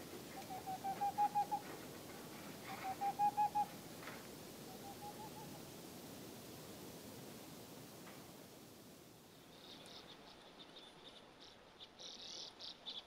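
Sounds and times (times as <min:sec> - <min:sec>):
owl hooting: 0:00.4 - 0:01.7, 0:02.7 - 0:03.7, 0:04.7 - 0:05.6.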